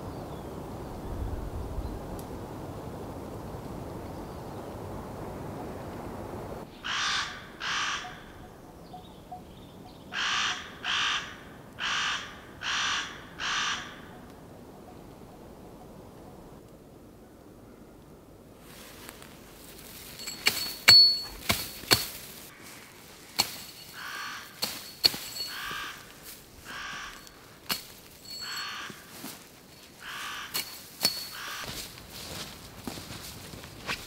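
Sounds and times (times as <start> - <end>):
crow-like bird cawing: 6.8 - 8.6, 10.1 - 14.3, 24.0 - 24.6, 25.4 - 27.4, 28.4 - 29.2, 30.0 - 30.6, 31.3 - 31.7
branches cracking and snapping: 18.7 - 34.0.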